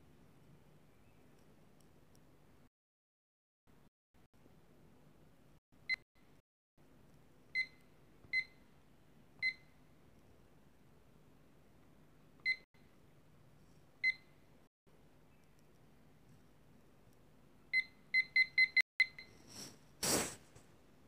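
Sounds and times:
timer key-press beeps: 17.8 - 19.3.

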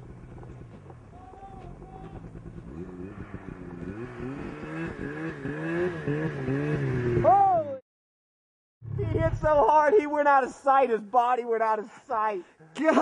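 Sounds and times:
snowmobile engine revving: 0.0 - 7.8.

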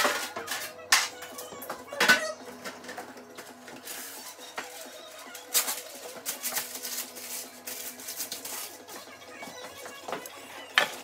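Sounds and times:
dishes clicking and knocking: 0.0 - 3.5
background music: 0.0 - 11.0.

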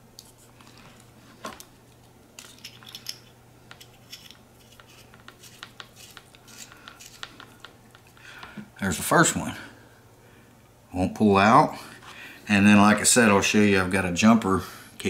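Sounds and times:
small metal clicks and scrapes: 2.4 - 8.0.

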